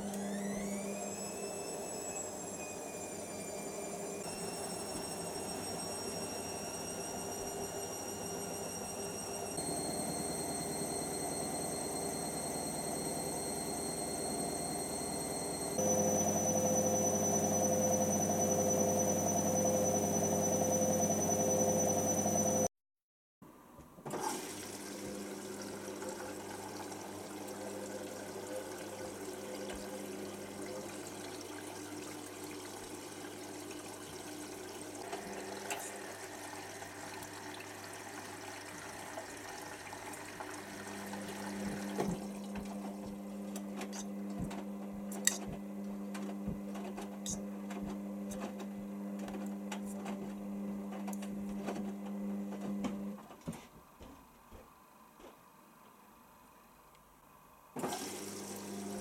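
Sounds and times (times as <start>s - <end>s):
washing machine hum: 0.0s - 22.7s, 24.0s - 55.6s, 57.6s - 59.0s
water running into machine: 24.1s - 43.6s, 57.8s - 59.0s.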